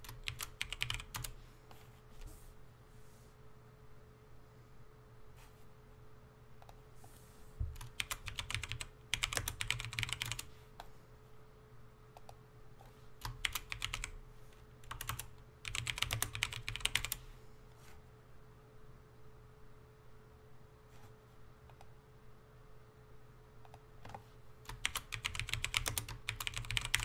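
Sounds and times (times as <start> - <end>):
typing on computer keyboard: 0.0 - 1.4, 7.8 - 10.5, 13.2 - 14.2, 14.8 - 17.2, 23.7 - 27.0.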